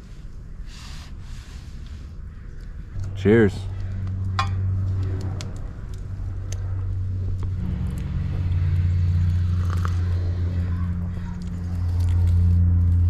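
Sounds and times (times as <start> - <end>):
low engine hum: 0.0 - 13.0.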